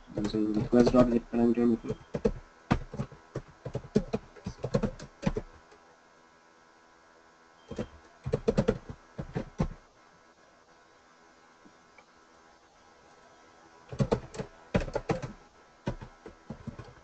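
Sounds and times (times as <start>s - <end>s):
computer keyboard typing: 0.1s - 1.2s, 1.8s - 5.6s, 7.7s - 9.8s, 13.9s - 17.0s.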